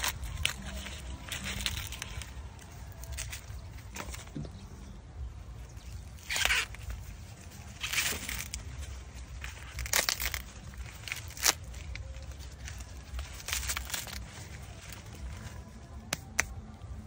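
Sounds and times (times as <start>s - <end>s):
corn husks tearing and rustling: 0.0s - 17.0s
sharp snap: 16.1s - 16.6s.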